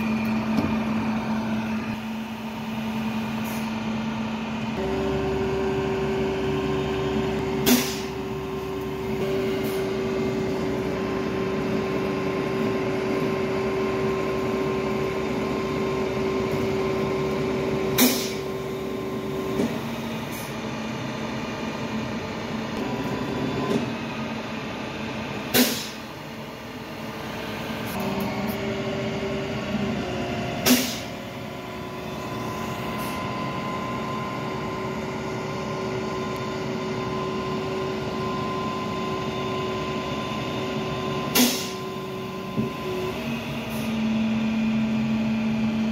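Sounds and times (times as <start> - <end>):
tow truck engine drone: 0.0 - 45.9
sharp bangs or air bursts: 7.5 - 8.5, 17.9 - 18.6, 25.4 - 26.2, 30.6 - 31.2, 41.3 - 41.8.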